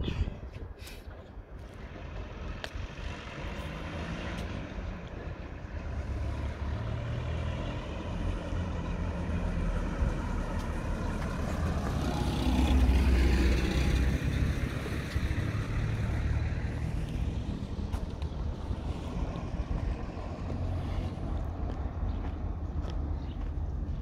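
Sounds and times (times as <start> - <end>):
road traffic passing: 0.0 - 24.0
steady low rumble: 14.0 - 24.0.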